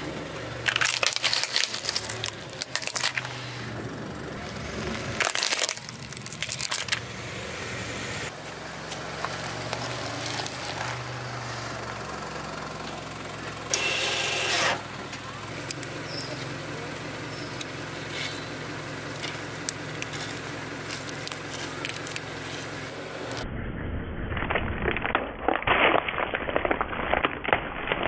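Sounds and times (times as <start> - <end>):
car engine humming: 0.0 - 23.4
plastic blocks cracking under tyre: 0.6 - 3.3, 4.8 - 7.0, 8.9 - 11.0, 19.2 - 23.4, 24.4 - 28.0.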